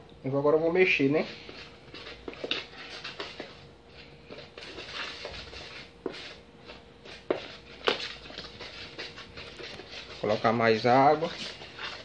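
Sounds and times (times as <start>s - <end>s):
dough squishing by hand: 0.0s - 12.0s.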